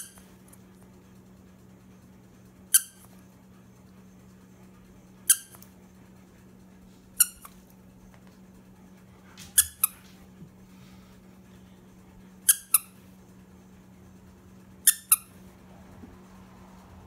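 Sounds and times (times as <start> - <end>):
squeaky toy squeaking: 2.7 - 3.1, 5.2 - 5.6, 7.2 - 7.6, 9.6 - 10.0, 12.4 - 13.0, 14.8 - 15.4.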